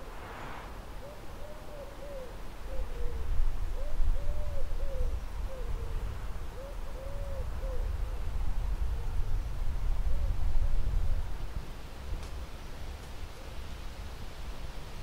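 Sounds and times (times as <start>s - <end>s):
low rumble: 0.0s - 1.0s
dove cooing: 1.0s - 6.0s, 6.6s - 7.9s.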